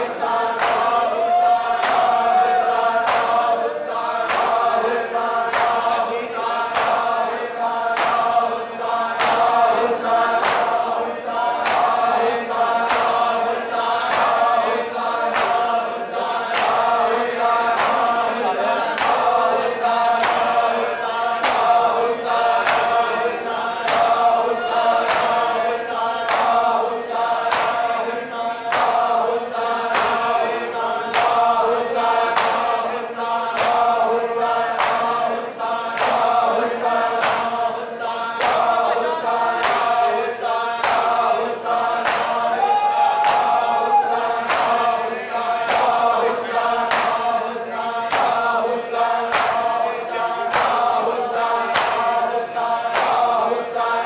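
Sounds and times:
men chanting together: 0:00.0 - 0:54.0
palms slapping chests: 0:00.2 - 0:01.1, 0:01.7 - 0:23.1, 0:36.0 - 0:37.6, 0:40.8 - 0:42.5, 0:44.3 - 0:47.3, 0:48.1 - 0:49.9, 0:50.5 - 0:52.1.

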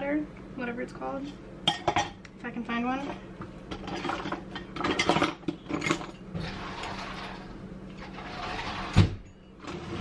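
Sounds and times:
metal utensils clattering: 0:03.7 - 0:10.0.

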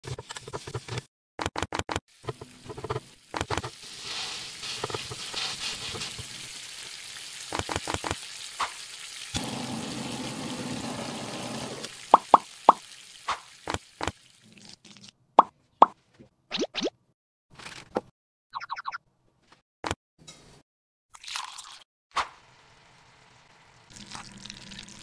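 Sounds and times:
food sizzling on griddle: 0:02.1 - 0:14.1.

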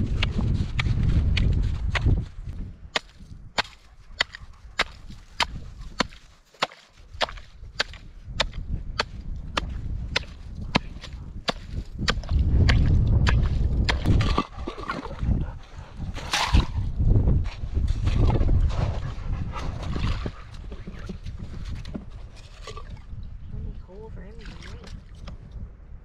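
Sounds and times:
axe chopping firewood: 0:02.9 - 0:14.4, 0:16.2 - 0:16.9.

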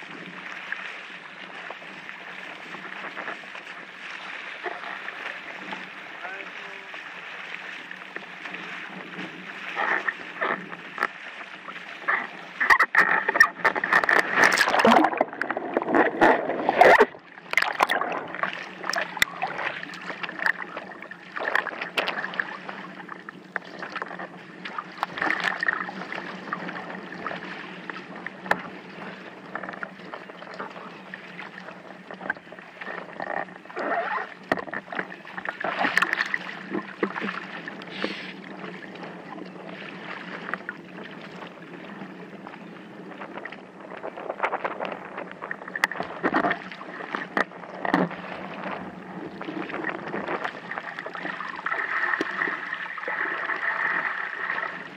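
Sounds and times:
water splashing against board: 0:02.6 - 0:22.8, 0:32.2 - 0:38.4.

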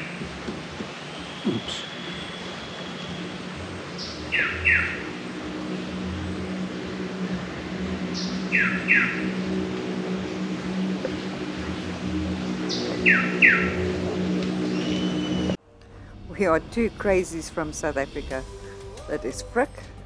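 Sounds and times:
steady low hum: 0:00.0 - 0:20.0
bird whistling call: 0:12.7 - 0:13.8, 0:14.7 - 0:15.6.

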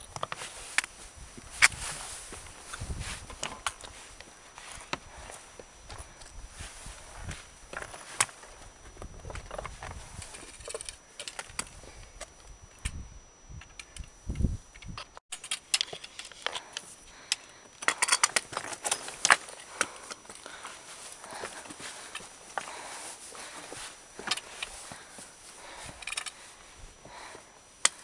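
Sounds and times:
trekking poles clicking on granite: 0:14.8 - 0:28.0.

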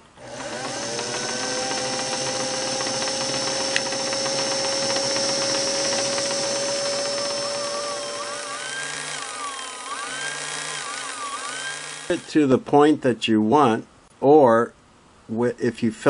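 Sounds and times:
sewing machine motor whine: 0:00.2 - 0:12.3.

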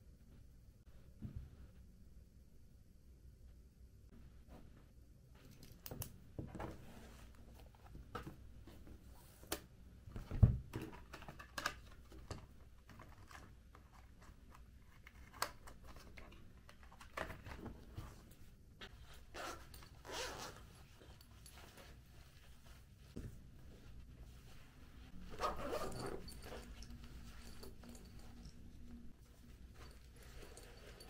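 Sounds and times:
raspy zipper-like scrape: 0:19.3 - 0:20.7, 0:25.2 - 0:26.7.

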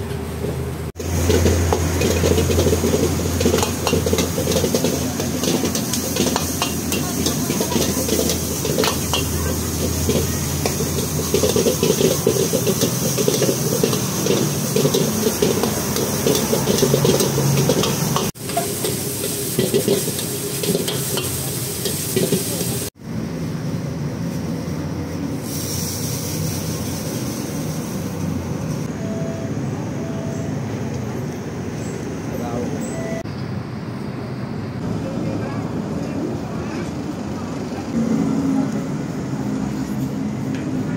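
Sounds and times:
food sizzling: 0:00.9 - 0:23.0, 0:24.3 - 0:28.9
metal ladle scraping a wok: 0:01.0 - 0:22.9.

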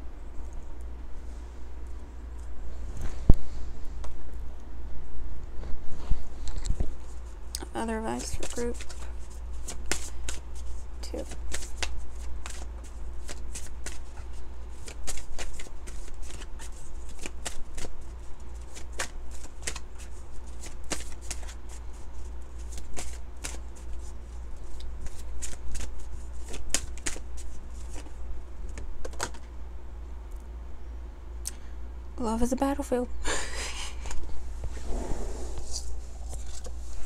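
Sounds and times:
card deck being shuffled: 0:08.1 - 0:24.1, 0:25.0 - 0:28.1.

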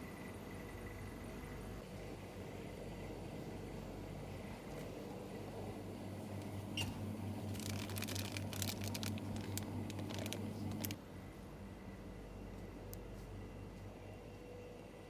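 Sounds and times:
steady low hum: 0:00.0 - 0:15.0
plastic bag crinkling: 0:07.4 - 0:11.0.

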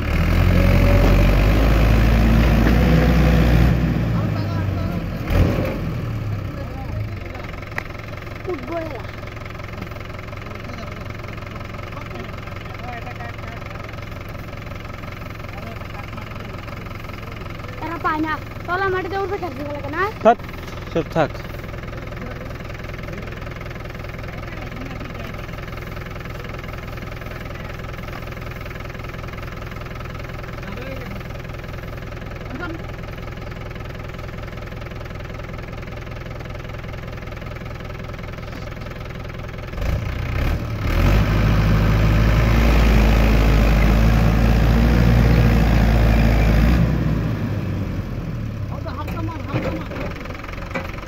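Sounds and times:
tractor diesel engine: 0:00.0 - 0:51.0.

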